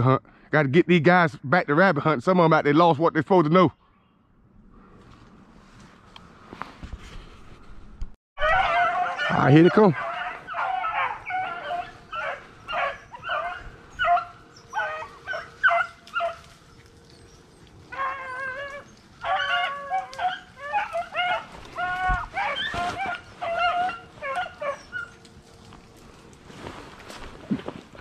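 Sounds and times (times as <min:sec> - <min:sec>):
hounds baying and barking: 0:08.4 - 0:26.7.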